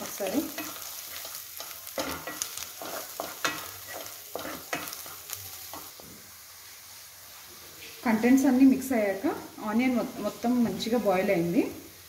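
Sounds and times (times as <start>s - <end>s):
onions frying in oil: 0.0s - 12.0s
spatula scraping metal pan: 0.5s - 5.8s.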